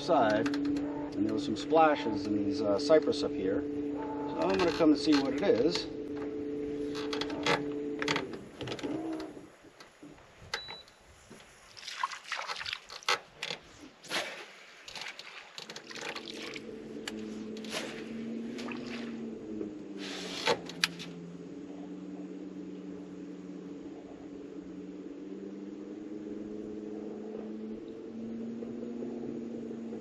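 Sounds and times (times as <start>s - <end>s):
low motor hum: 0.0s - 10.0s, 14.9s - 30.0s
water splashing and trickling: 11.6s - 22.0s.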